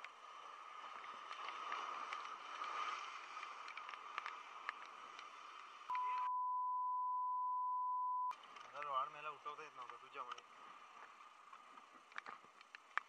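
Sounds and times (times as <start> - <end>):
electronic beep: 5.9 - 8.3.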